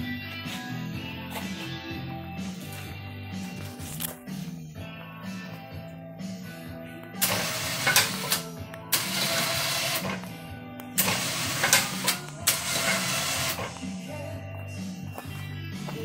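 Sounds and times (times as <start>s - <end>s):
soft background music: 0.0s - 16.0s
electric winch motor running: 7.2s - 8.4s, 9.0s - 10.2s, 11.0s - 13.7s.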